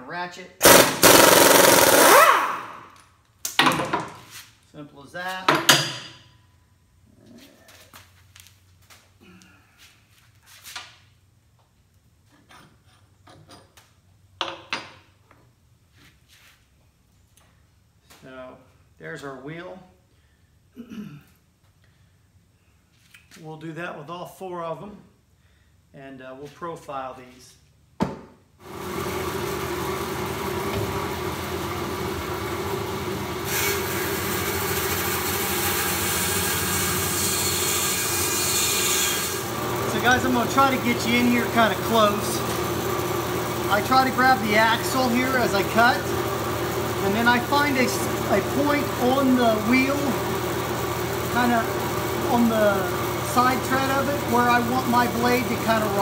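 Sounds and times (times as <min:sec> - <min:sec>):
blade cutting rubber: 0:00.6 - 0:02.7
bandsaw motor humming: 0:00.6 - 0:02.8, 0:28.6 - 0:56.0.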